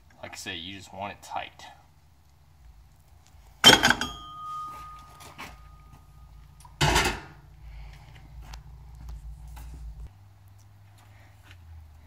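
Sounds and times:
low steady hum: 0.0 - 12.0
sharp ringing metal clank: 3.6 - 7.2.

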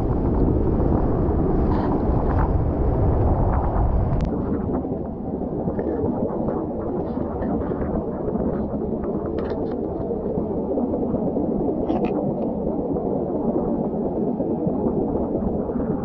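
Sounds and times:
knife scraping rock and shell: 11.8 - 12.2.

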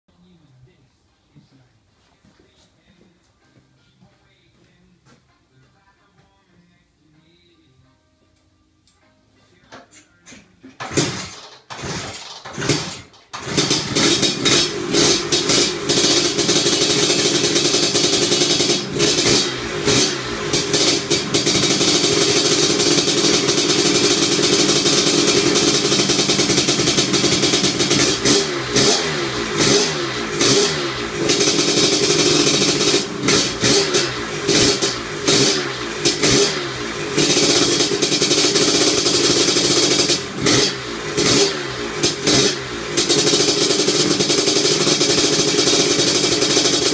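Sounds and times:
scooter engine starting and revving: 10.6 - 46.9.

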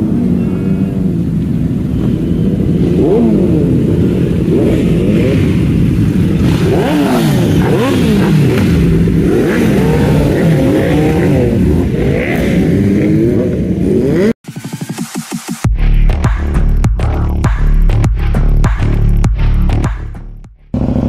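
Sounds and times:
motorcycle engines revving: 0.0 - 14.8, 20.7 - 21.0.

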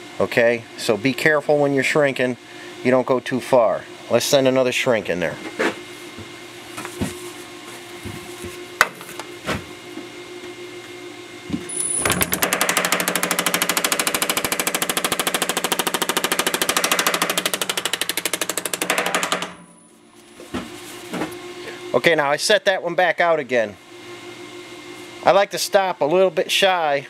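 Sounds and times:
steady hum: 0.0 - 27.0
power hammer striking metal: 11.7 - 19.9.

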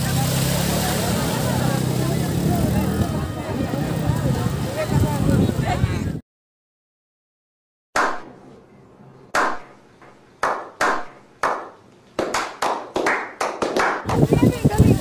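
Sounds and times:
hands clapping with echo: 10.4 - 14.3.

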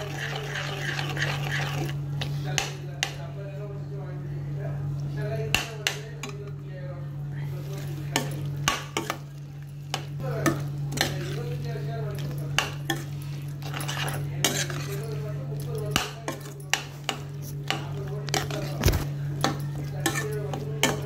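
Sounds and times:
spoon scraping and knocking a pan: 0.0 - 2.0, 12.2 - 21.0.

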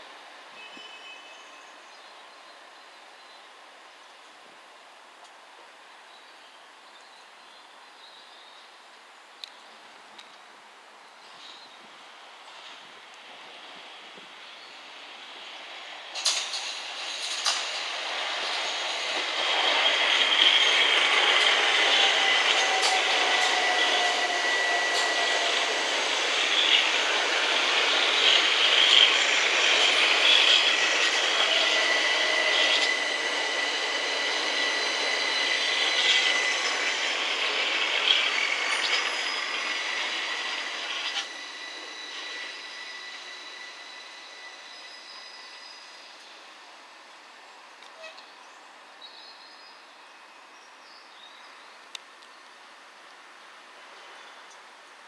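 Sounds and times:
high train whine: 10.2 - 55.0
train wheels on rails: 11.2 - 48.4
wheels clicking over rail joints: 16.1 - 24.0.

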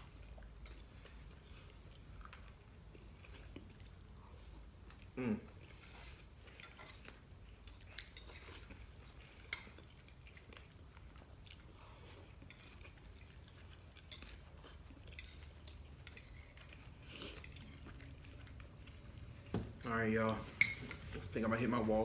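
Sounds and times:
chewing noodles: 0.0 - 22.0.

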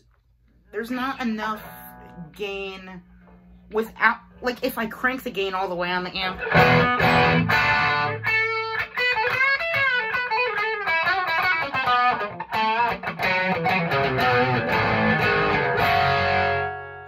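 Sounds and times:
distorted electric guitar lead: 6.2 - 17.0.

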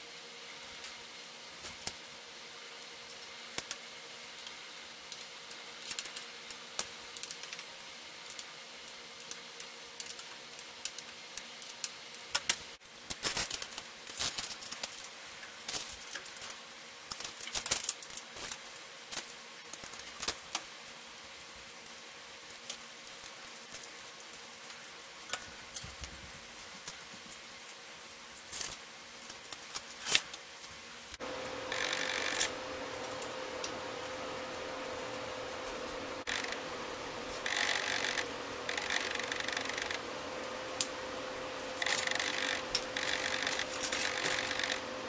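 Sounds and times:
faint hum: 31.1 - 45.0.

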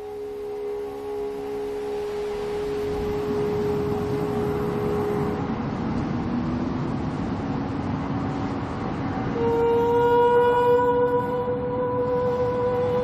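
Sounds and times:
held drone notes: 0.0 - 7.2, 9.2 - 13.0
steady rushing noise: 0.0 - 13.0.

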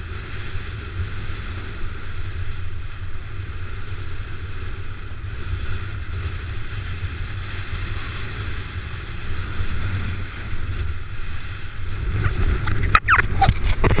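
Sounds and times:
wind buffeting microphone: 0.0 - 14.0
short gliding sounds: 12.0 - 14.0.

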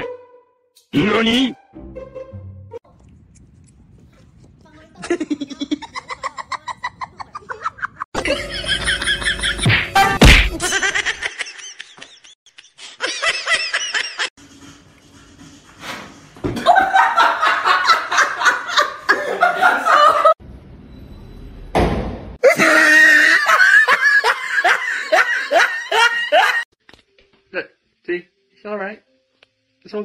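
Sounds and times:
people laughing: 5.0 - 9.7, 10.5 - 14.9, 16.6 - 20.4, 22.4 - 26.7.

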